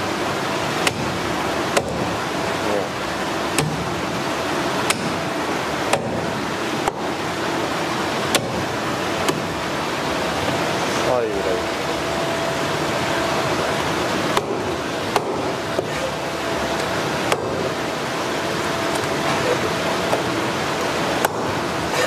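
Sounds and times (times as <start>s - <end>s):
cleaver chopping on plastic board: 0.8s - 2.2s, 3.5s - 3.9s, 4.8s - 5.2s, 5.9s - 7.0s, 8.3s - 8.6s, 9.2s - 9.5s, 14.3s - 16.0s, 17.3s - 17.7s, 21.2s - 21.5s.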